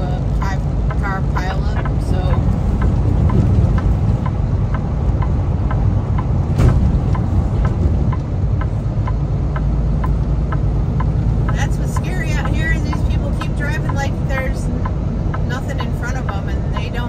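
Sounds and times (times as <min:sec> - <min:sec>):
truck engine and tyres rumbling: 0:00.0 - 0:17.0
light ticks: 0:07.1 - 0:17.0.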